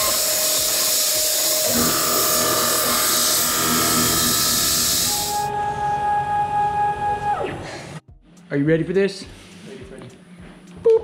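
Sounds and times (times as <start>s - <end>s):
plasma cutter torch hissing: 0.0s - 5.5s
steady machine whine: 0.0s - 8.0s.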